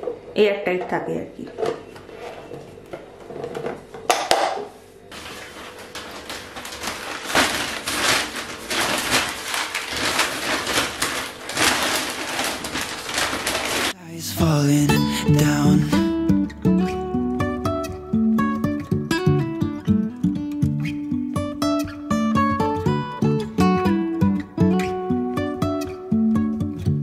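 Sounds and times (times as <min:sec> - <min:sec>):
plastic bag crinkling: 0:05.1 - 0:14.0.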